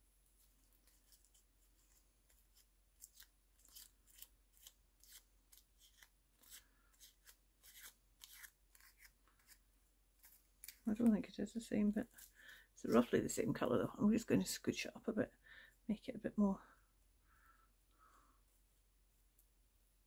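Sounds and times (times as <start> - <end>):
paper raffia crinkling: 0.2 - 13.3.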